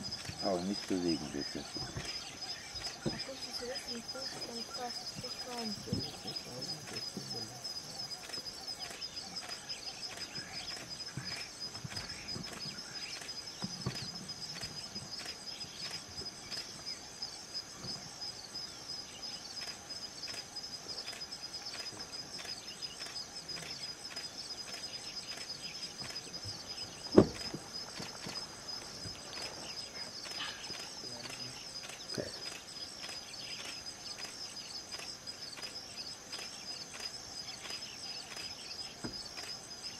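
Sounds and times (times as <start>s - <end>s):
pulsing insect chorus: 0.0s - 39.9s
faint ticks: 19.6s - 26.2s
sharp knock: 27.1s - 27.6s.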